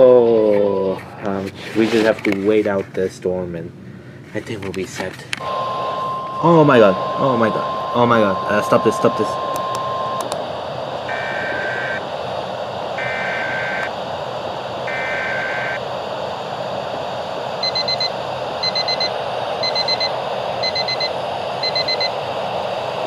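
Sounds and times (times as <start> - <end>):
radio static hiss: 0.0 - 3.0, 4.3 - 23.0
warbling data tones: 5.4 - 22.4.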